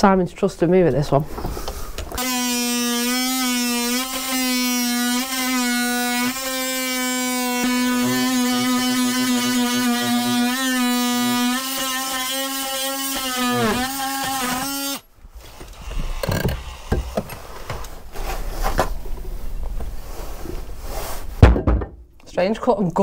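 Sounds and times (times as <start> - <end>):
oscillating tool whine cutting wood: 2.2 - 15.0
knocks and handling noise: 15.5 - 22.2.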